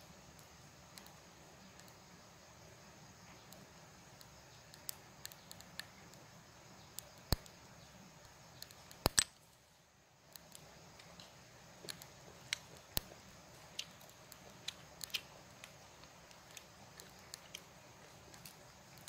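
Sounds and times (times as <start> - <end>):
snail shells clicking: 4.2 - 6.2, 6.8 - 7.6, 8.2 - 9.4, 10.3 - 19.0.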